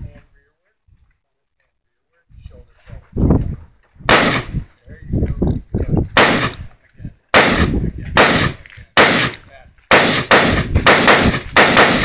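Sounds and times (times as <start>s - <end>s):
rifle shots with ringing tail: 4.1s - 4.6s, 6.2s - 6.6s, 7.3s - 12.0s.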